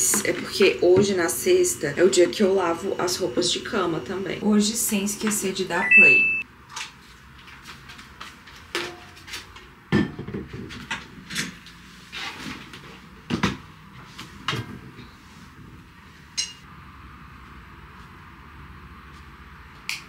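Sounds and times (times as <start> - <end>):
objects knocking and clattering: 8.7 - 11.5.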